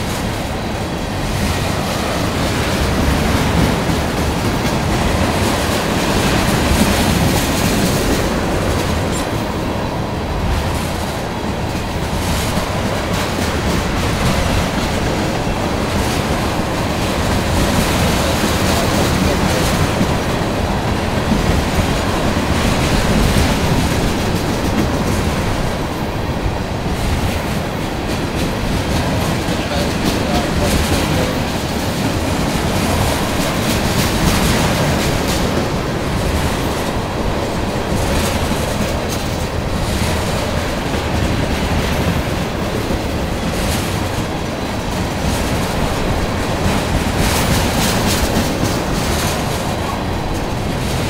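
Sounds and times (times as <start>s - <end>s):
steel wheels on rails: 0.0s - 51.0s.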